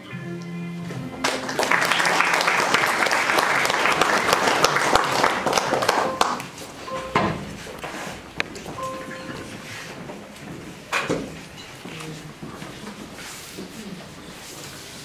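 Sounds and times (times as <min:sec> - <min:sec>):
audience applauding: 0:01.2 - 0:07.1
knocks and shuffling: 0:06.0 - 0:15.0.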